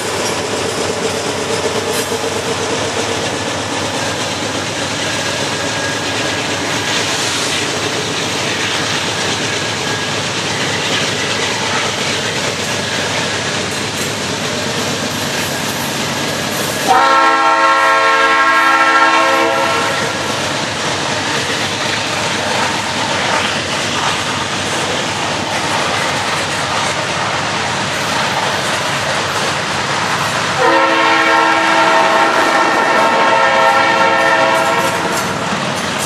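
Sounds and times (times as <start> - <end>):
train wheels clacking on rails: 0.0 - 36.0
locomotive horn blasts: 16.8 - 20.3, 30.6 - 35.4.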